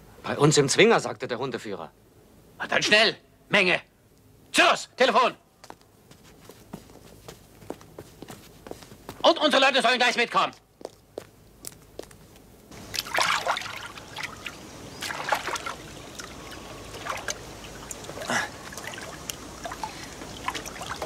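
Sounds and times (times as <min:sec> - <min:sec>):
water trickling and lapping: 0:12.7 - 0:21.0
oars splashing in water: 0:12.8 - 0:21.0.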